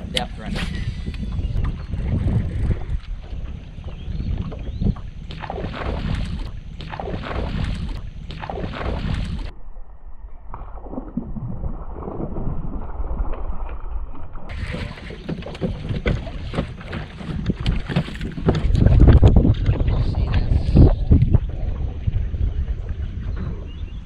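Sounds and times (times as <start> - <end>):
wind buffeting microphone: 0.0 - 9.5, 14.5 - 24.0.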